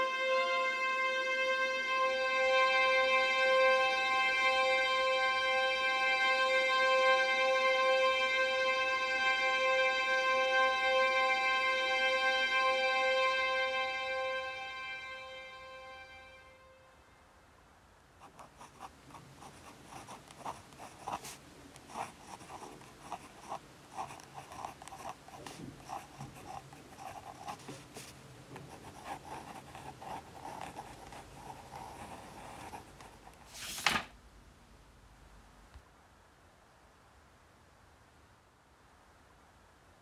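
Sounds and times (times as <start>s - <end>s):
irregular scratching strokes: 22.0s - 33.9s.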